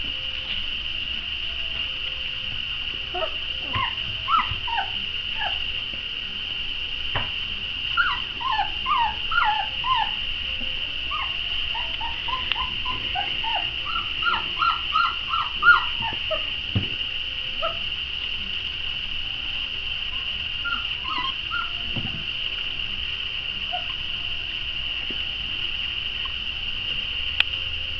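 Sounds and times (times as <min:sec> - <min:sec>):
steady high-pitched whine: 0:00.0 - 0:27.9
puppies whimpering: 0:02.9 - 0:05.9, 0:07.9 - 0:16.7, 0:17.4 - 0:17.9, 0:20.1 - 0:22.2, 0:23.6 - 0:24.2.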